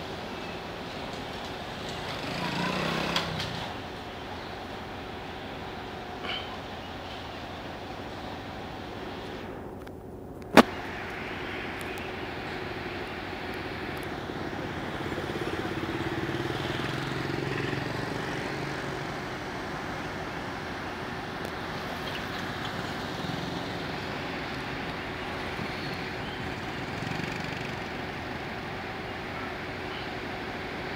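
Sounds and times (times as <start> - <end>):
steady traffic noise: 0.0 - 30.9
scooters riding past: 1.0 - 4.0, 13.7 - 30.2.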